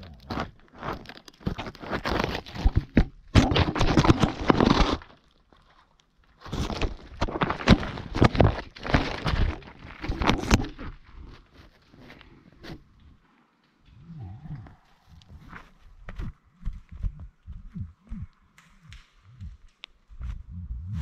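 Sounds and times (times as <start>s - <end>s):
camera scraping against rock: 0.1s - 5.2s, 6.4s - 12.9s.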